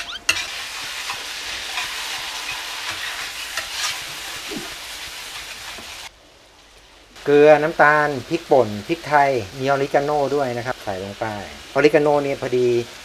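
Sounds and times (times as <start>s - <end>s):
spatula scraping a wok: 0.0s - 6.1s
sauce sizzling in a wok: 0.0s - 13.0s.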